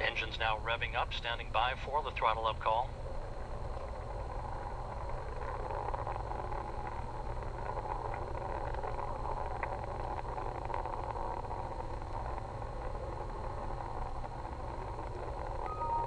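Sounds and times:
rocket engines roaring: 0.0 - 10.5
faint crackles: 0.0 - 16.0
low rumble: 0.0 - 16.0.

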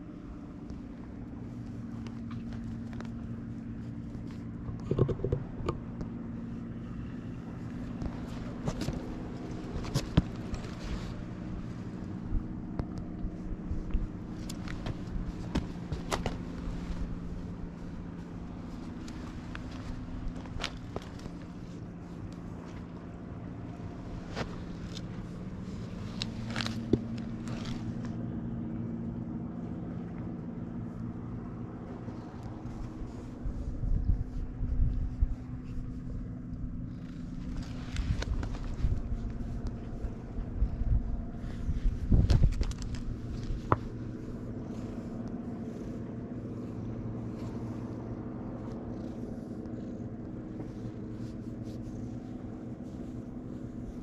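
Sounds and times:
engine humming: 0.0 - 54.0
handling rustling and clicks: 0.6 - 28.2, 32.1 - 54.0.

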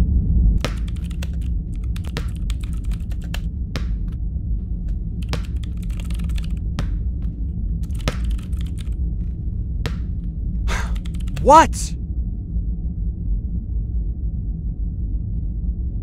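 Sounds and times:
typing on laptop keyboard: 0.7 - 3.4, 5.3 - 6.6, 7.8 - 9.0, 10.9 - 11.4.

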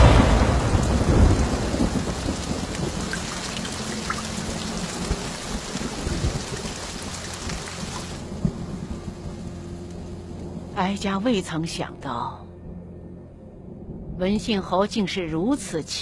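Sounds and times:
steady rain: 0.0 - 11.8
thunder rumbling: 0.0 - 12.0.

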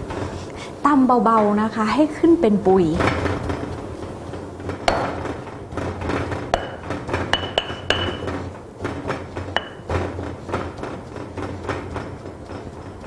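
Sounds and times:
stone pestle pounding in mortar: 4.8 - 5.5, 6.1 - 13.0.

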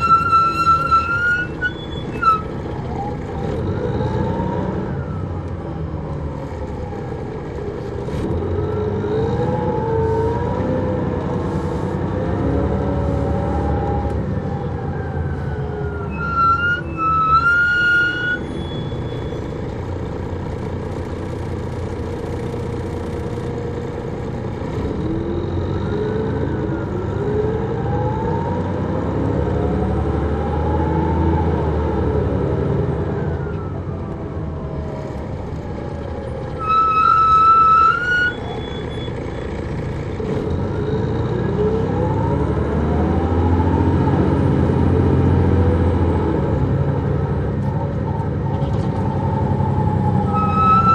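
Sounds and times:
coach engine and transmission whine: 0.0 - 50.9.

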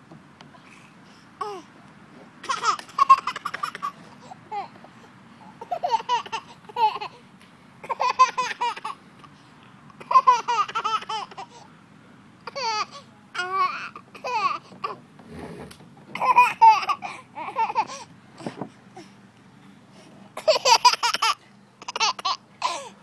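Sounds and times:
toddler giggling: 2.4 - 4.8, 5.4 - 7.2, 7.8 - 9.0, 10.0 - 11.6, 16.1 - 18.6, 20.4 - 23.0.

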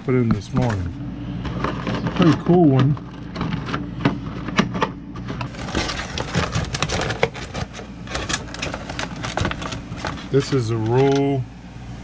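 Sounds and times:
steady low hum: 0.0 - 12.0
plastic packaging crackling: 5.5 - 11.2.

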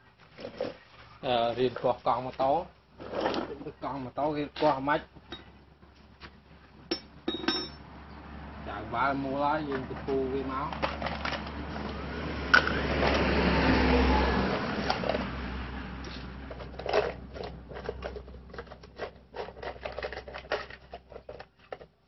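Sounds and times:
rough scraping: 0.1 - 5.0, 14.3 - 21.8.

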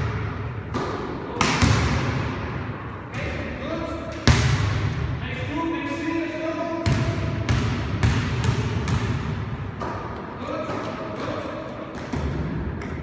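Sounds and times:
basketball bouncing on gym floor: 0.0 - 2.2, 4.1 - 5.1, 6.8 - 10.1.

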